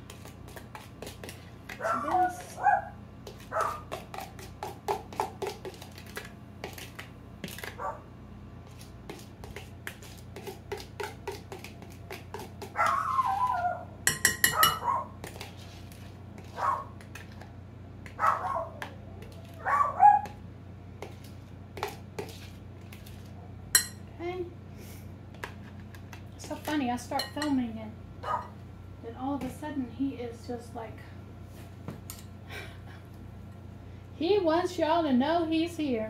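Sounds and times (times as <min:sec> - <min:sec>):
dog barking: 0:01.8 - 0:03.9, 0:07.8 - 0:08.0, 0:12.8 - 0:13.8, 0:14.5 - 0:15.2, 0:16.6 - 0:17.0, 0:18.2 - 0:18.8, 0:19.6 - 0:20.4, 0:28.2 - 0:28.6
spoon clinking in a mixing bowl: 0:14.1 - 0:14.9, 0:23.7 - 0:24.0, 0:27.1 - 0:27.6.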